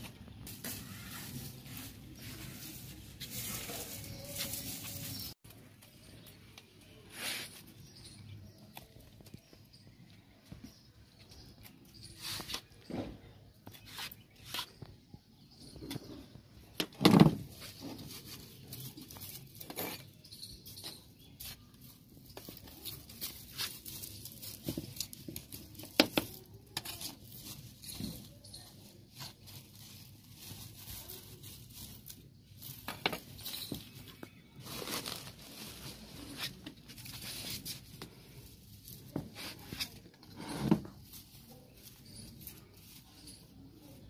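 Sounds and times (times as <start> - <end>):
dry leaves rustling and crackling: 0.0 - 10.0, 17.3 - 40.2, 40.8 - 44.0
hand tool scraping dry soil: 0.4 - 5.4.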